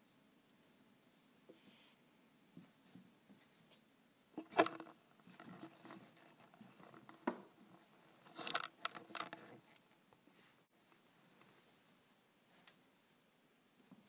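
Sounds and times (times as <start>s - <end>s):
cable and camera rattling: 4.4s - 10.0s.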